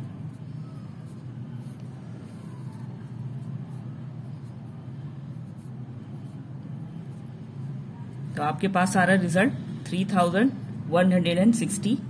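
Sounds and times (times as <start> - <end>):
pen scratching on paper: 0.0 - 7.6
low background hum: 0.0 - 12.0.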